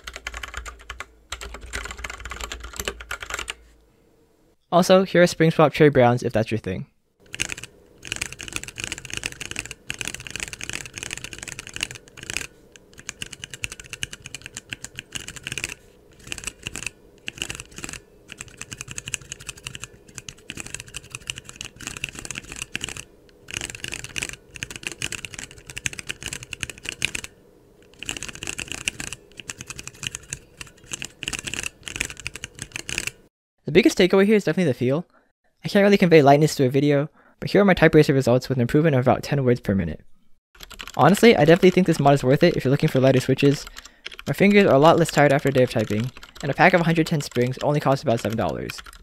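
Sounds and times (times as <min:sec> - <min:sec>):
mechanical keyboard typing: 0:00.0 - 0:03.6, 0:07.2 - 0:33.2, 0:40.6 - 0:49.0.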